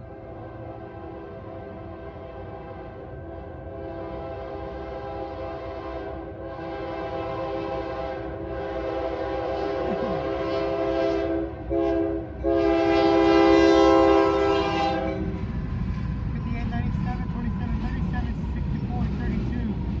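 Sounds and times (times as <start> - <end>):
locomotive air horn blasts: 0.5 - 15.4.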